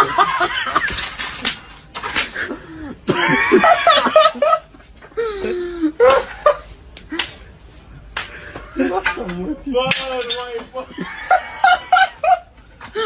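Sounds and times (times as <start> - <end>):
people laughing hard: 0.0 - 1.2, 2.4 - 7.2, 10.8 - 13.0.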